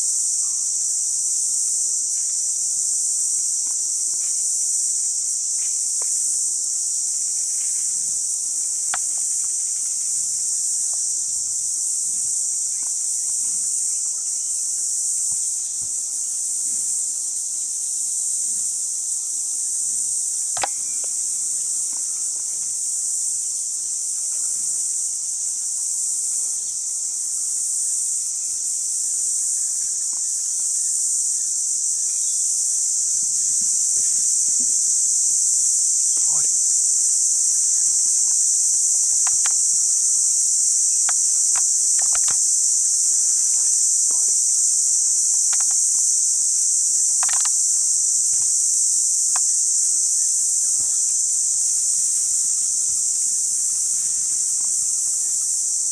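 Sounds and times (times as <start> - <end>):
insect chorus drone: 0.0 - 55.9
sharp click: 20.6 - 21.1, 41.1 - 42.4, 47.2 - 47.6.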